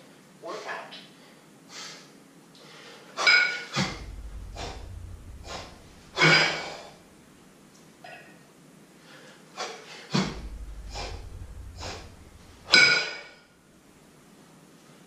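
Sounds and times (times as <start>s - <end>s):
low rumble: 3.8s - 7.8s, 10.2s - 14.0s.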